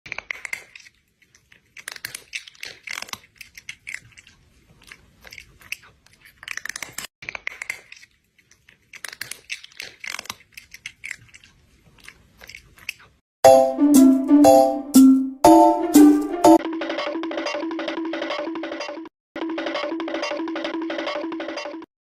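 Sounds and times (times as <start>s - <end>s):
cat chewing food noisily: 0.1s - 13.2s.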